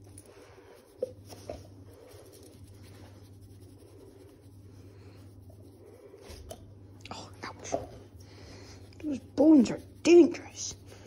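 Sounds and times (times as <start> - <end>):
hand rubbing dog fur: 0.0 - 6.7, 7.5 - 11.0.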